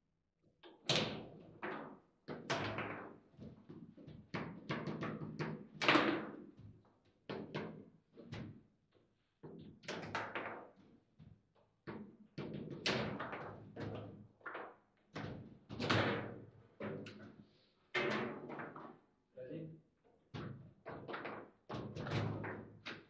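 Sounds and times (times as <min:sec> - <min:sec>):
foosball knocks and clacks: 0:00.7 - 0:06.6, 0:11.9 - 0:17.2.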